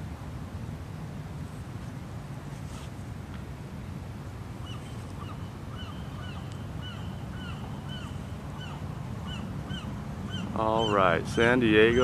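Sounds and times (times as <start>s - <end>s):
bird calling: 4.6s - 12.0s.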